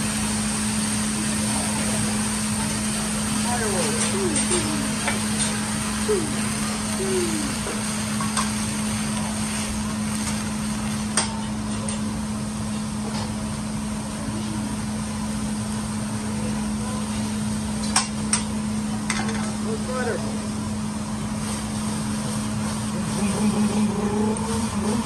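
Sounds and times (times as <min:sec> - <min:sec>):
food sizzling on a griddle: 0:00.0 - 0:25.0
low steady hum: 0:16.2 - 0:25.0.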